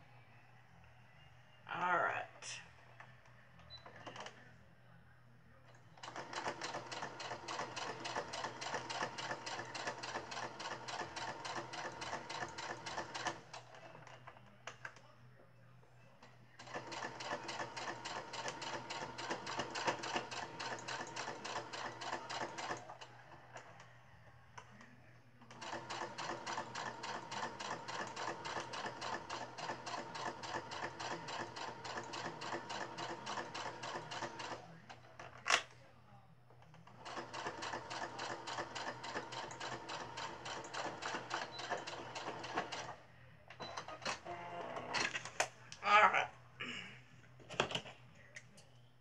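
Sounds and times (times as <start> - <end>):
electric sewing machine stitching: 16.7 - 22.8, 25.6 - 34.6, 37.0 - 42.9.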